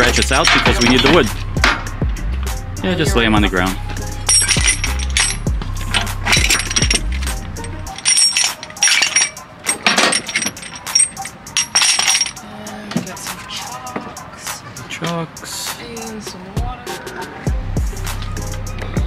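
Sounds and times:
chains clinking in metal toolbox: 0:00.0 - 0:01.3, 0:04.2 - 0:12.4.

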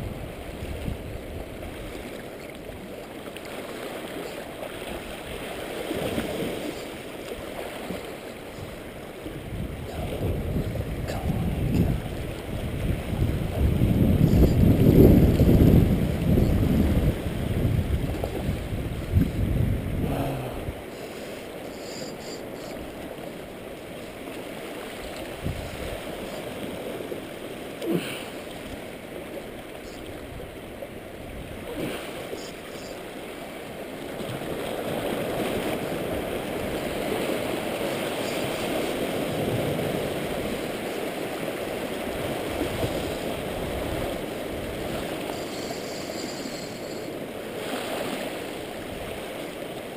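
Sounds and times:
wind buffeting microphone: 0:00.0 - 0:02.1, 0:08.0 - 0:20.9, 0:24.9 - 0:27.4, 0:34.2 - 0:47.0
seawater lapping against rocks: 0:00.0 - 0:49.9.

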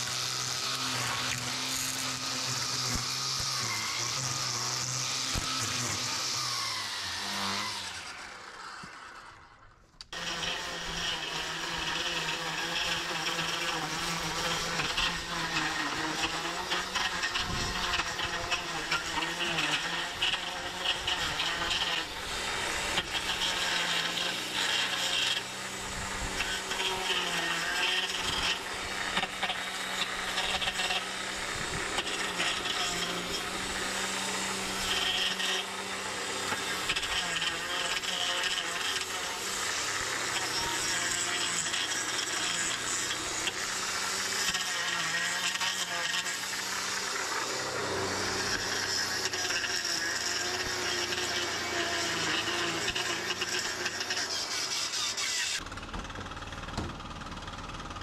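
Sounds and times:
blade scraping grass and dirt: 0:00.0 - 0:09.5, 0:10.1 - 0:57.3
electric edger motor whining: 0:00.0 - 0:58.0.

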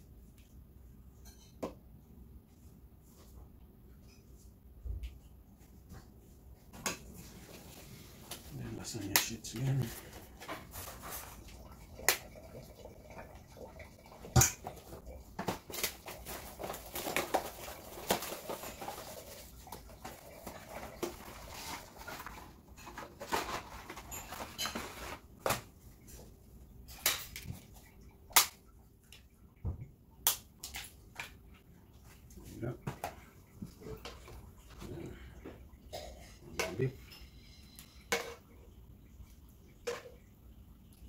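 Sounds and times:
scraping and rustling: 0:09.6 - 0:11.6, 0:15.5 - 0:25.4.

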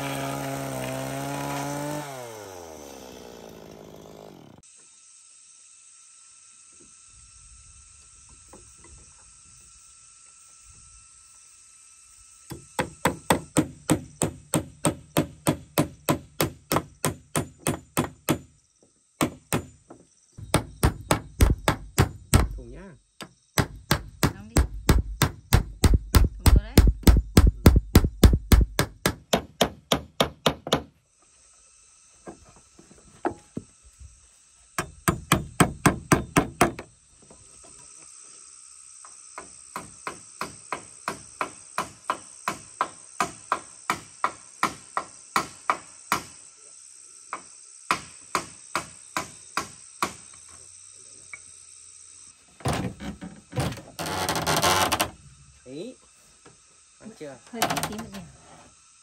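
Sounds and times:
insects buzzing: 0:00.0 - 0:59.0
hammer driving nails into wood: 0:12.5 - 0:18.5, 0:20.4 - 0:22.6, 0:23.6 - 0:30.9, 0:34.8 - 0:36.9.

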